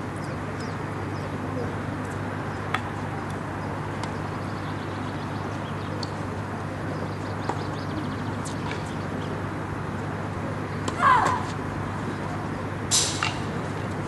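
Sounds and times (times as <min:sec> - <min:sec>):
faint birdsong: 0:00.0 - 0:11.0.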